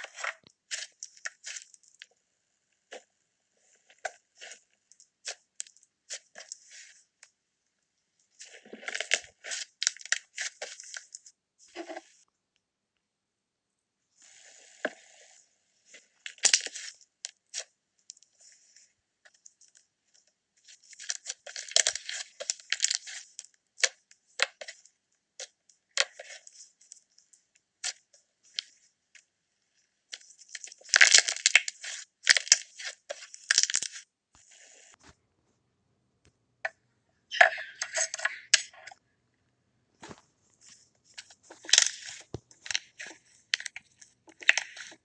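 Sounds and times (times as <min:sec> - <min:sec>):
slime crackling and squishing: 0:00.0 - 0:02.1, 0:02.8 - 0:07.2, 0:08.3 - 0:12.2, 0:15.9 - 0:29.3, 0:29.9 - 0:35.0, 0:40.0 - 0:45.0.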